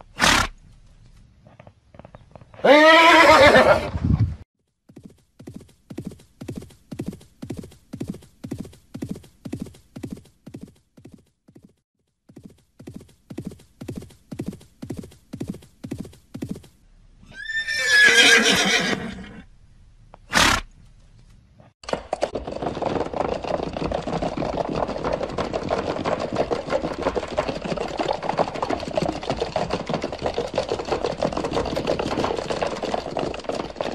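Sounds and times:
horse hooves clip-clopping: 0.3s - 3.2s, 4.9s - 16.8s, 20.9s - 33.9s
horse neighing: 2.6s - 4.0s, 17.3s - 19.5s.

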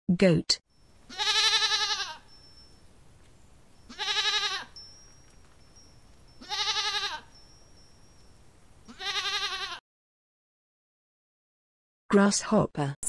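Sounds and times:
goat bleating: 1.1s - 2.3s, 3.9s - 4.8s, 6.4s - 7.3s, 8.9s - 9.8s.

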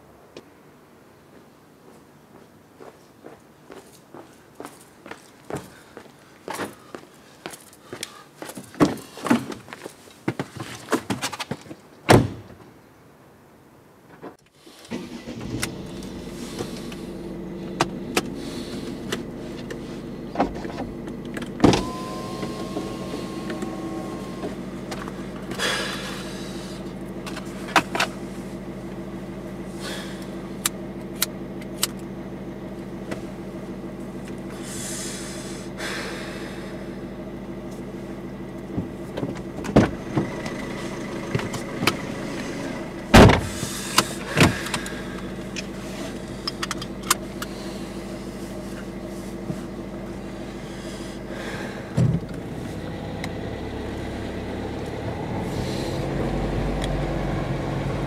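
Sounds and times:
low hum: 14.9s - 58.0s
short rising tone: 21.6s - 26.2s
clicks and knocks in car cabin: 38.7s - 40.6s, 43.1s - 44.9s.

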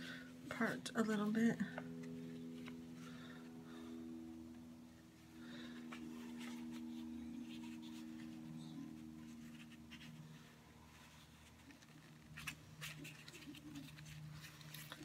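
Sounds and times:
low steady hum: 0.0s - 15.0s
ribbon rustling and scratching: 5.5s - 15.0s.

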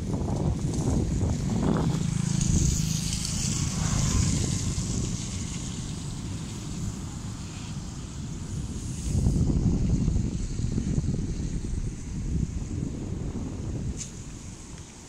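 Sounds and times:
vehicle engine humming: 0.0s - 11.9s
wind rumble on microphone: 0.0s - 15.0s.

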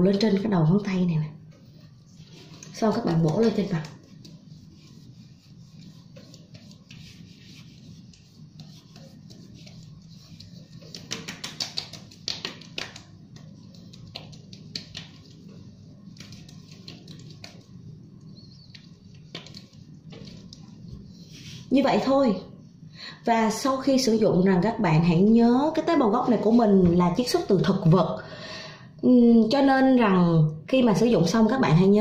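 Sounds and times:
steady low hum: 0.0s - 29.1s
fingertips patting skin: 2.3s - 21.0s.

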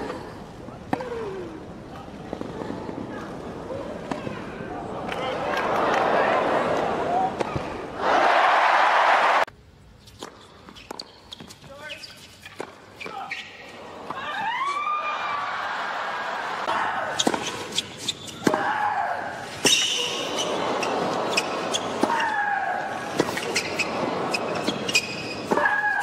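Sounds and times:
stadium crowd noise: 0.0s - 9.5s, 13.2s - 26.0s
rackets hitting tennis ball: 7.3s - 7.8s, 16.6s - 18.8s, 19.5s - 26.0s.

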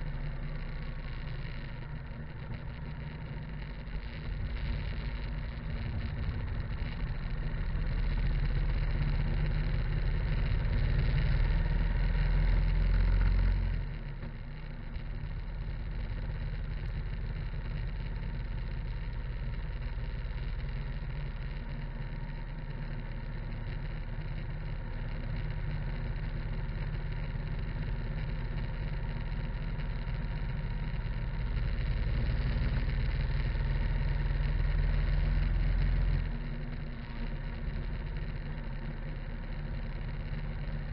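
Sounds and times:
motorcycle engine rumble: 0.0s - 40.9s
wind rumble: 1.4s - 10.8s.

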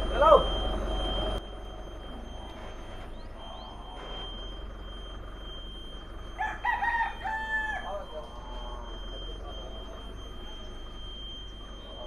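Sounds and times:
low steady rumble: 0.0s - 12.0s
rooster crowing: 6.3s - 8.8s.

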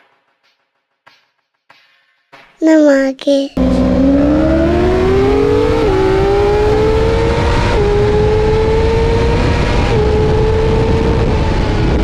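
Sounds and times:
engine accelerating through gears: 3.6s - 12.0s.

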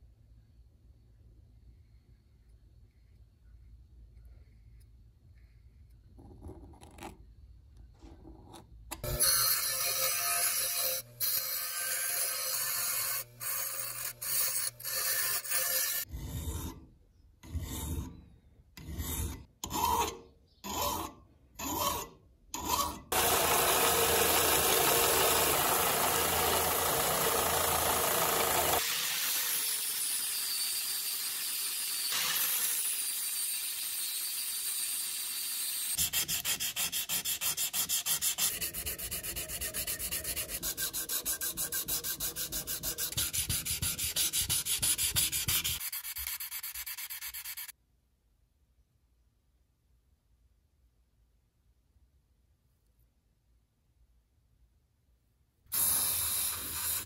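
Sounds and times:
steel grinding on grinding wheel: 9.0s - 16.6s, 22.6s - 45.8s
belt sander running: 23.1s - 33.7s
hand sanding metal: 36.0s - 47.7s.

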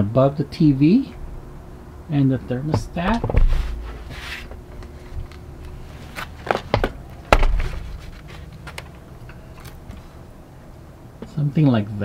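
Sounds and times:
knocks and bumps of handling: 2.6s - 5.4s, 6.1s - 10.1s
low thump: 7.3s - 8.1s.

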